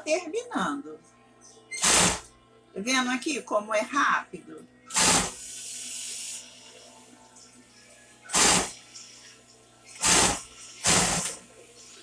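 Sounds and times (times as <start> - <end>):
sewing machine stitching: 1.8 - 2.2, 4.9 - 5.3, 8.3 - 8.7, 10.0 - 11.4.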